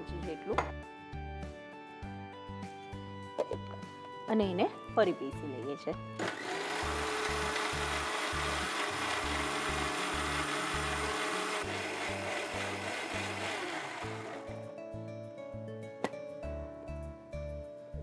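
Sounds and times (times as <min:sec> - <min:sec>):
background music with steady beat: 0:00.2 - 0:06.2
mixer-grinder motor running: 0:06.2 - 0:14.6.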